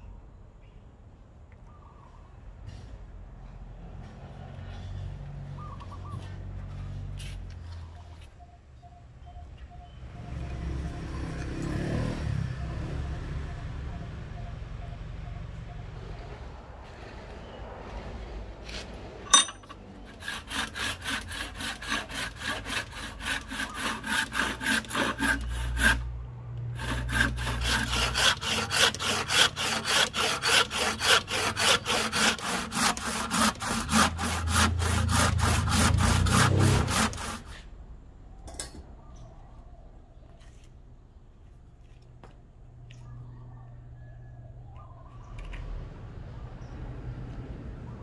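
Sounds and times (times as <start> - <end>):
hand saw cutting wood: 18.7 - 37.7
sharp ringing clink: 19.3 - 19.8.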